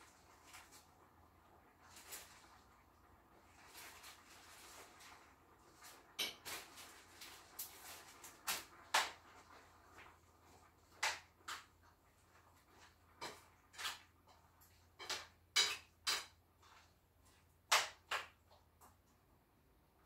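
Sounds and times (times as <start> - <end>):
utensils knocking against a pot: 6.2 - 6.7, 13.2 - 16.4.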